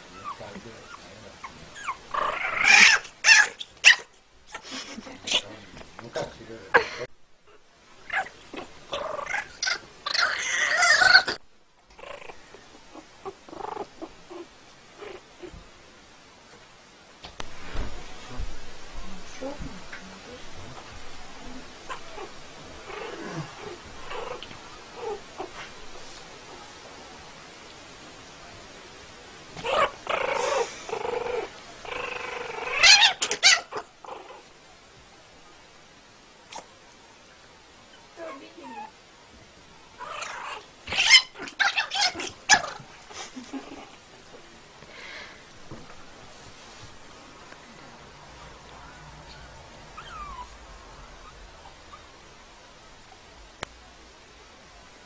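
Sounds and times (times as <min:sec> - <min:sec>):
puppy and kitten crying: 0:01.7 - 0:04.6, 0:08.1 - 0:11.4, 0:29.6 - 0:34.4, 0:40.0 - 0:42.9, 0:49.9 - 0:52.1
puppy short cries: 0:01.8 - 0:04.1, 0:32.7 - 0:33.8, 0:40.3 - 0:42.7.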